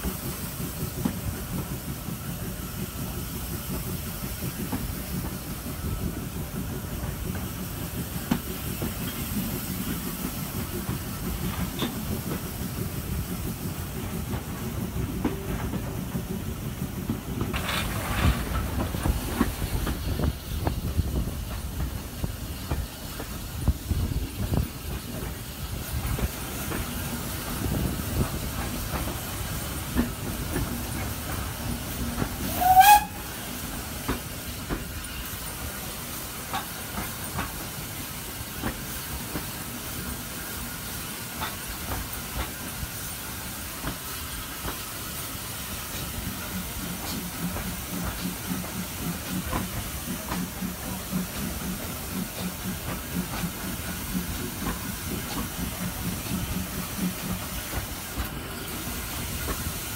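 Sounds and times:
steam locomotive exhaust and hiss: 0:00.0 - 0:59.9
train wheels on rails: 0:00.0 - 0:59.9
steam train whistle: 0:32.4 - 0:33.6.

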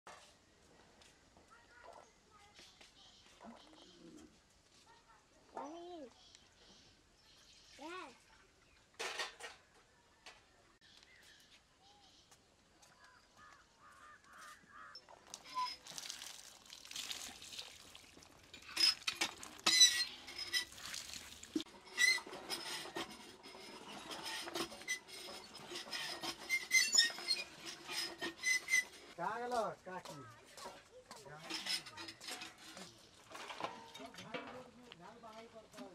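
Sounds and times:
metal bowls and utensils clinking: 0:09.0 - 0:09.7, 0:18.1 - 0:29.2, 0:30.6 - 0:34.8
water running from a tap: 0:15.3 - 0:21.6.

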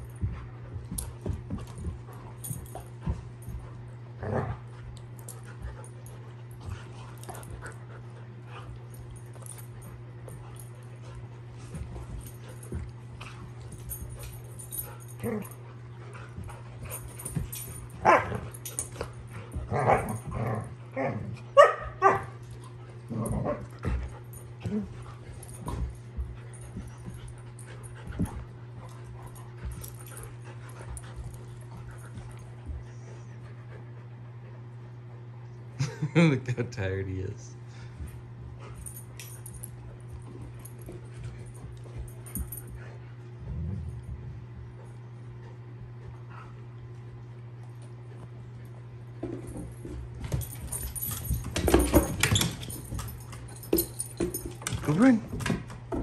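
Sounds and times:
dogs barking and yipping: 0:21.6 - 0:22.4.

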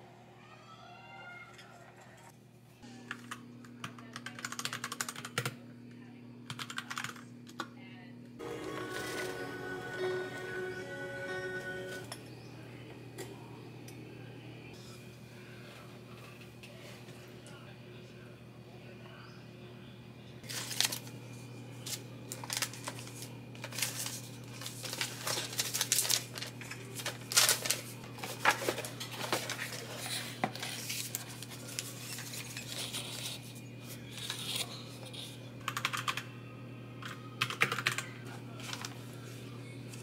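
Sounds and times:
mechanical keyboard typing: 0:03.9 - 0:05.6, 0:06.5 - 0:07.2, 0:35.7 - 0:36.2, 0:37.4 - 0:38.1
papers rustling: 0:20.4 - 0:21.2, 0:21.8 - 0:35.4, 0:38.5 - 0:40.0.

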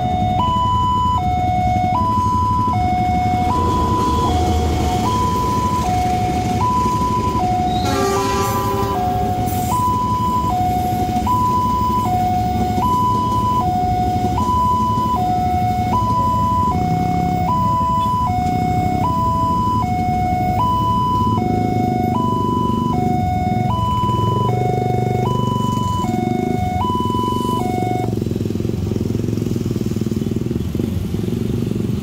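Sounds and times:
two-tone crossing alarm: 0:00.0 - 0:28.2
motorcycle engines: 0:00.0 - 0:32.0
train rumbling past: 0:02.7 - 0:11.2.

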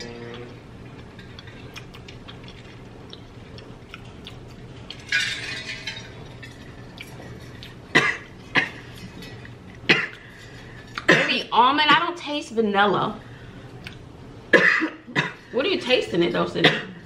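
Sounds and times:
chewing crunchy cookies: 0:00.0 - 0:05.1, 0:06.2 - 0:11.1
person coughing: 0:07.9 - 0:08.9, 0:09.9 - 0:10.2, 0:11.0 - 0:11.4, 0:14.5 - 0:15.4, 0:16.6 - 0:17.0.

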